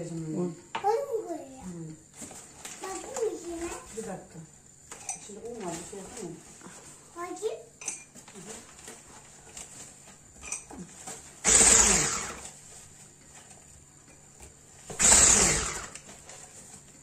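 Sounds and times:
electric hand mixer whirring: 11.4 - 12.6, 14.9 - 16.1.

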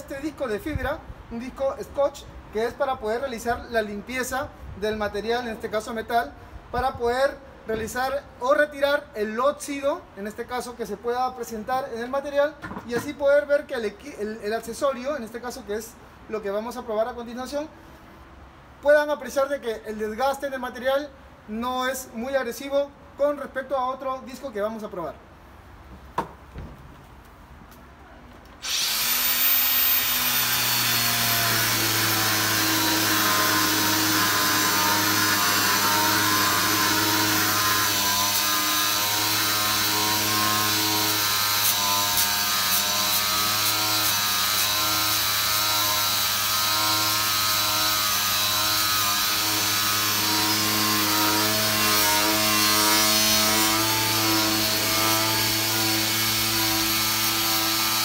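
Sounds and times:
angle grinder motor hum: 28.6 - 58.0.

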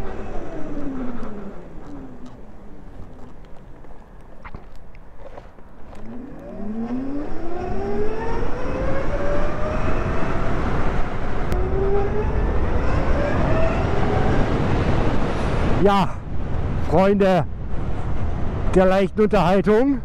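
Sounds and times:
electric motor whine: 0.0 - 3.5, 5.9 - 14.9
wind and road noise: 0.0 - 20.0.

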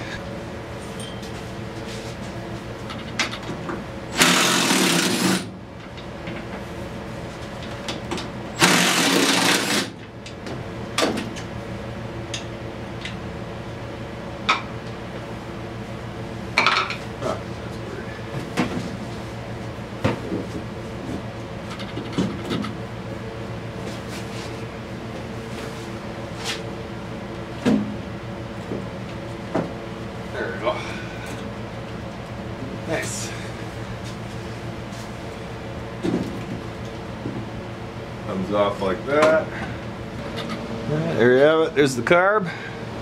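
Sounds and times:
cordless power driver whirring: 4.2 - 5.4.

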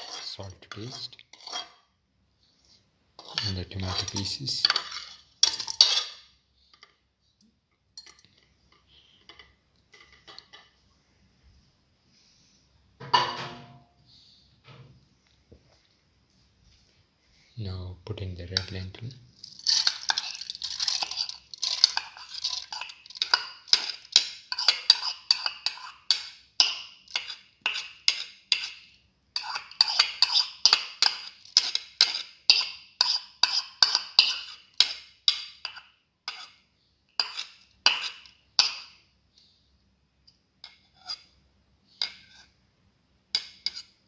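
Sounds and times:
lentils pattering into metal pot: 18.5 - 35.5.

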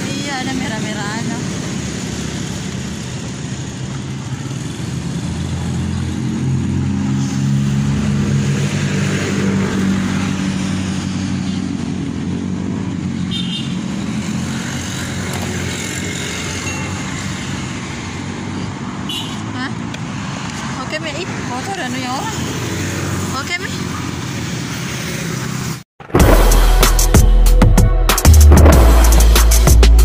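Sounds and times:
traffic noise: 0.0 - 27.1, 28.2 - 30.0
vehicle engine humming: 28.2 - 30.0.

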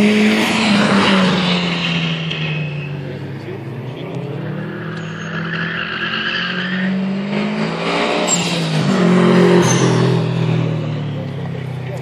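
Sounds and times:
car engine revving: 0.0 - 12.0
tyre squeals: 4.5 - 7.1.

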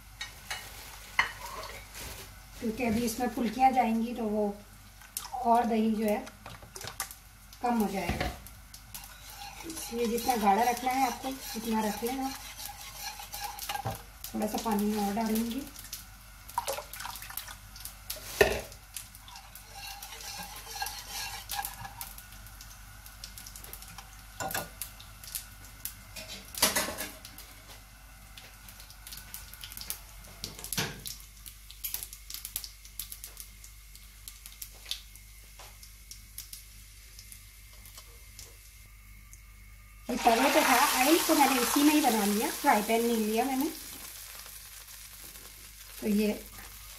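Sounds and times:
whisk stirring in a bowl: 9.0 - 13.9, 19.2 - 22.0.

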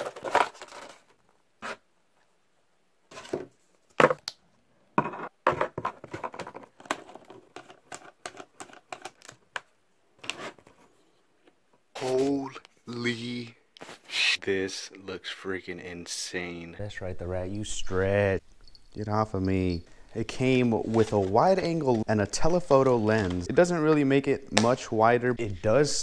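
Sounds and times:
plastic packaging rustling: 0.0 - 1.2, 19.9 - 24.8.

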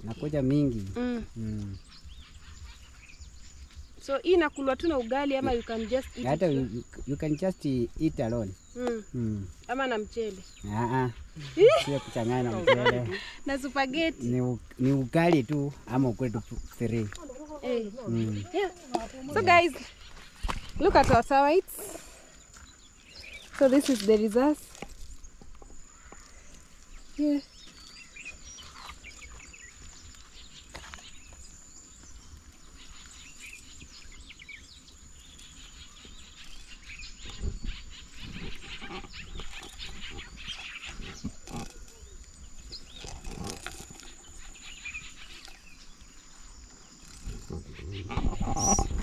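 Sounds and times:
steady high-pitched whine: 0.0 - 22.3
outdoor rustling: 0.0 - 49.0.

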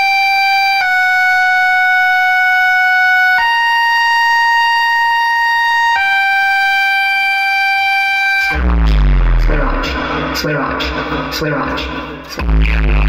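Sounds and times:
electronic siren-like tone: 0.0 - 10.3.

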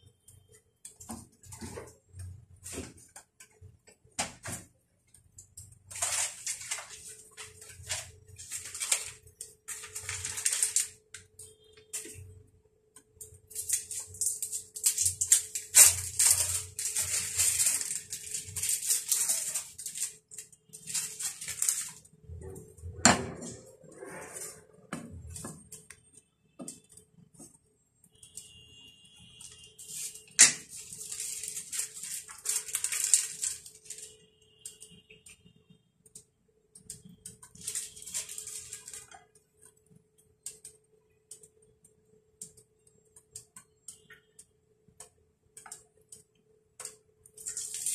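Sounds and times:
wooden spatula scraping a pan: 23.2 - 25.7.

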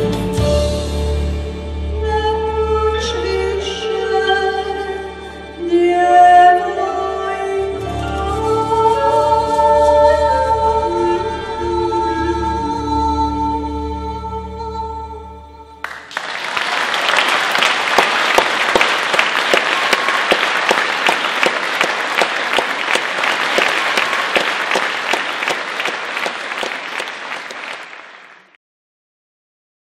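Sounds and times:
audience applauding: 15.8 - 28.6.

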